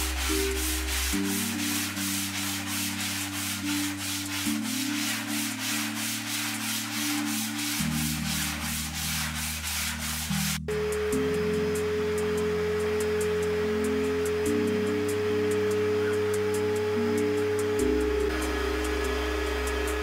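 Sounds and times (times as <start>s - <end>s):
sandpaper rasping on plywood: 0.0s - 10.7s
low held tones: 10.4s - 20.0s.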